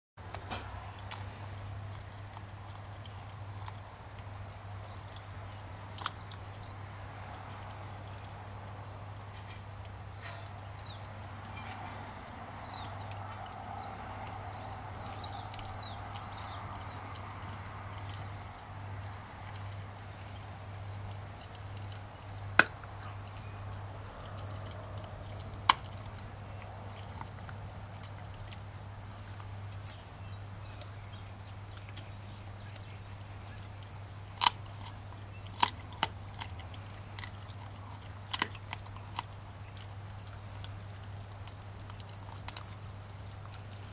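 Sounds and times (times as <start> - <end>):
bone crunching clicks: 0.2 - 10.0, 10.7 - 43.9
puppy chewing bone: 0.2 - 43.9.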